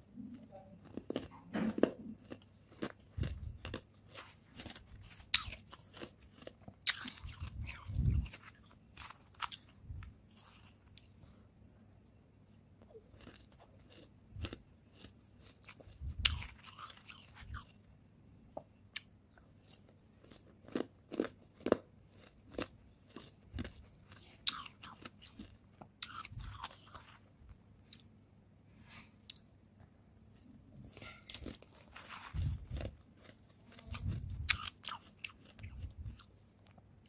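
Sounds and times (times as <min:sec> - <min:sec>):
frost being crunched and chewed: 0:00.8 - 0:11.1, 0:12.8 - 0:17.7, 0:31.0 - 0:36.8.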